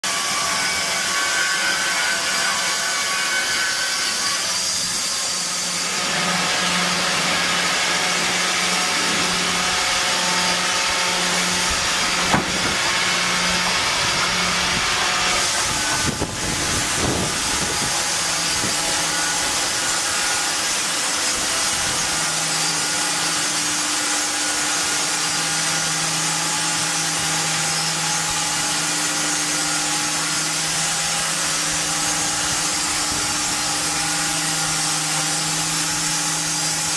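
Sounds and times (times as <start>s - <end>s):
circular saw edger running: 4.1s - 36.9s
sharp knock: 12.3s - 12.8s.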